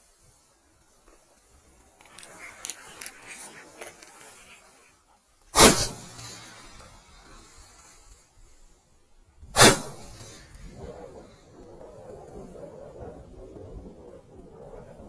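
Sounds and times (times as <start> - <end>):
shotgun shots: 5.6 - 6.8, 9.6 - 10.4.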